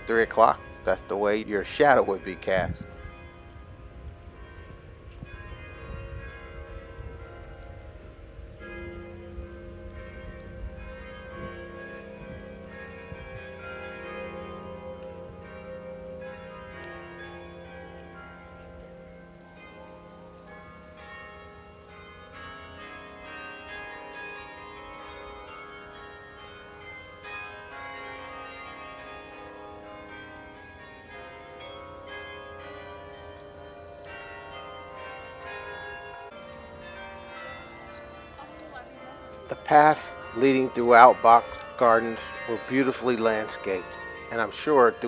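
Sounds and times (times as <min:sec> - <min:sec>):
carillon bells playing tune: 0:00.0 - 0:07.7, 0:20.5 - 0:45.0.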